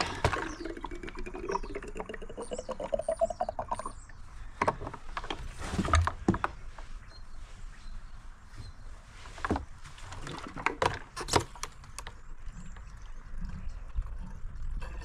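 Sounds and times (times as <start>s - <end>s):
liquid pouring with rising gurgle: 0.0s - 4.2s, 12.3s - 15.0s.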